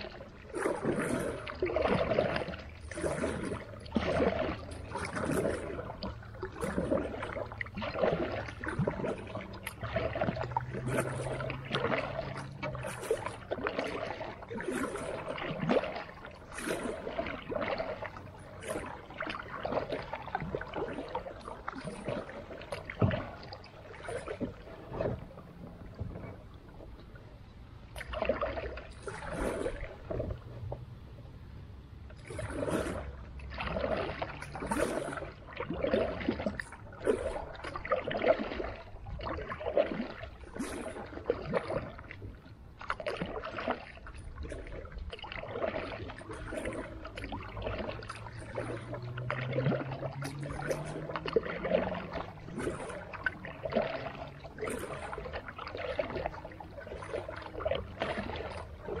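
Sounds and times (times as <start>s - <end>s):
low hum: 0.0s - 37.7s
creek water splashing: 0.0s - 59.0s.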